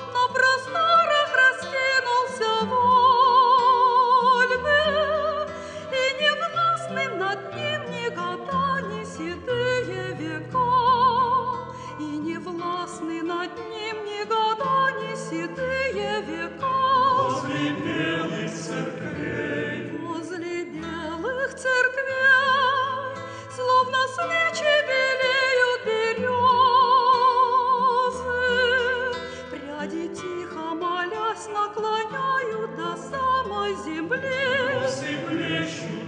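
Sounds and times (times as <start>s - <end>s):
choir singing slow church song: 15.3s - 21.0s, 33.2s - 36.0s.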